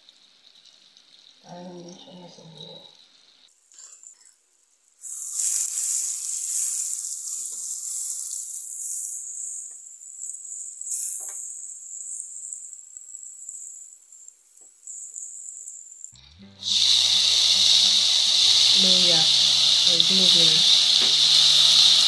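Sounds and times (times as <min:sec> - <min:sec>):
butter sizzling in a pan: 0:00.0 - 0:22.0.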